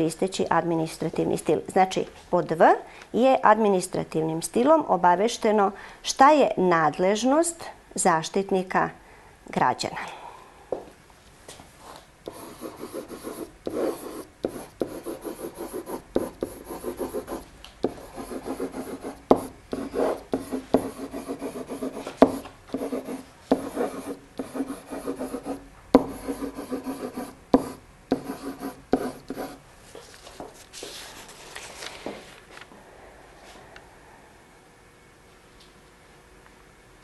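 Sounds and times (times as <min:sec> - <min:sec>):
pen scratching on paper: 0:12.3 - 0:29.6.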